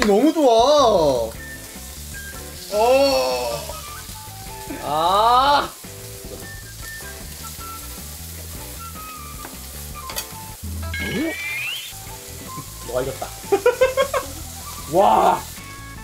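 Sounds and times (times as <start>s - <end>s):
beef sizzling on a grill: 0.0s - 16.0s
person shouting: 2.6s - 3.7s, 4.7s - 5.8s
rising exclamation: 2.6s - 3.8s.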